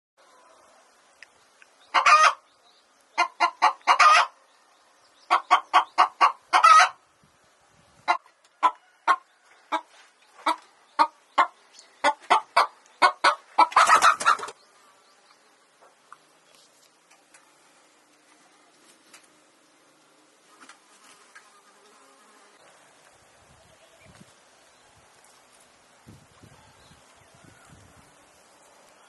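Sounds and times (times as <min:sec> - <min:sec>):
hen clucking: 0:01.9 - 0:02.5, 0:03.1 - 0:04.4, 0:05.2 - 0:07.0, 0:08.0 - 0:14.6.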